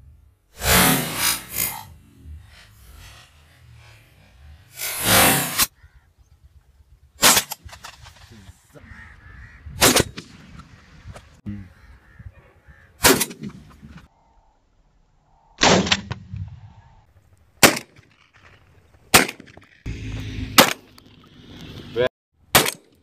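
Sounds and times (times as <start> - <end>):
sharp gunshots: 4.7 - 5.7, 7.2 - 8.0, 9.8 - 10.6, 13.0 - 13.6, 15.6 - 16.2, 17.6 - 18.1, 19.1 - 19.6, 20.5 - 20.9, 22.5 - 22.9.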